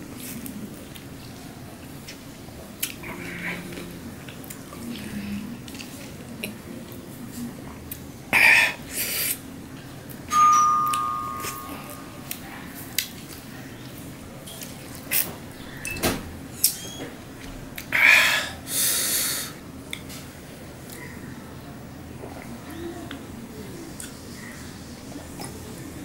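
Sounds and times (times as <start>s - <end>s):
steel plate ringing: 10.3s - 12.2s.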